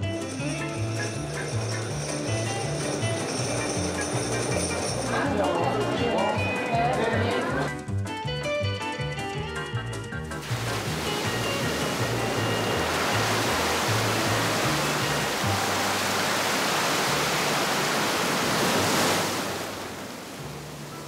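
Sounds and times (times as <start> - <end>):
background music with bass: 0.0 - 16.2
ocean surf rushing: 10.4 - 21.0.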